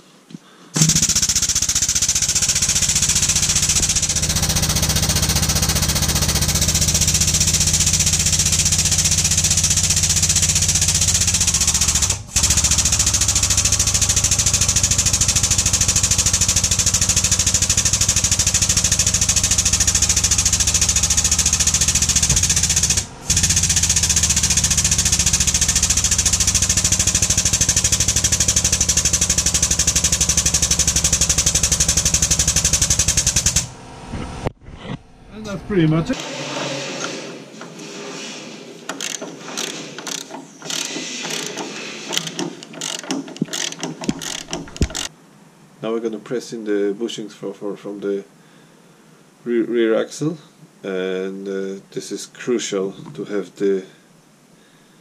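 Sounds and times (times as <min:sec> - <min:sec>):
hydraulic press mechanical chatter: 0:00.8 - 0:34.4, 0:38.9 - 0:45.1.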